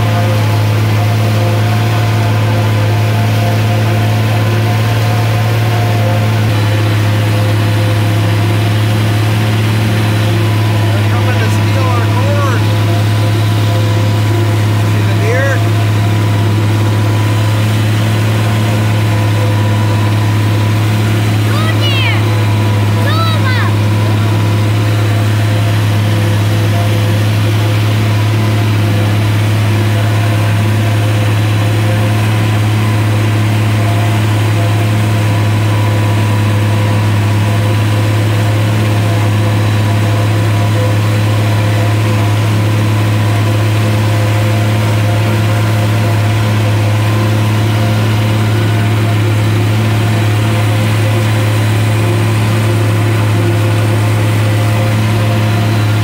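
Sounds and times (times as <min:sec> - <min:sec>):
forage harvester chopping corn: 0:00.0 - 0:56.0
tractor diesel engine droning: 0:00.0 - 0:56.0.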